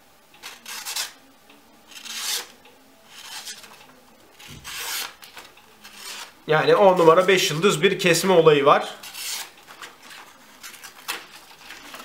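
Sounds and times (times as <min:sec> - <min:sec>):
knife slicing paper: 0:00.4 - 0:01.2, 0:01.9 - 0:03.8, 0:04.6 - 0:05.2, 0:09.0 - 0:12.0.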